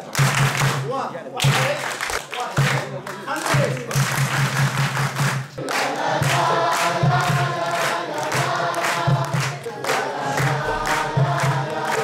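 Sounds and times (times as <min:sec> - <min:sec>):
hand clapping in rhythm: 0:00.0 - 0:12.0
children singing: 0:05.6 - 0:12.0.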